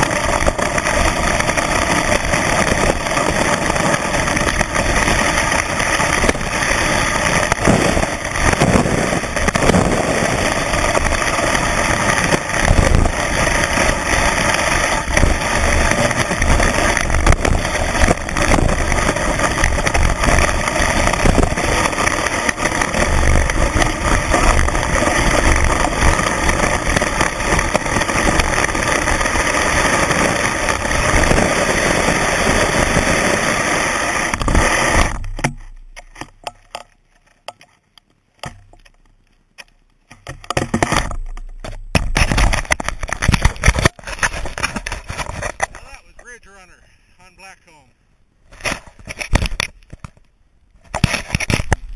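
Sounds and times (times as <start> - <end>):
skis hissing over snow: 0.0 - 35.3, 43.3 - 47.9
skis knocking on bumps: 0.0 - 37.8, 38.4 - 47.9, 50.8 - 51.9.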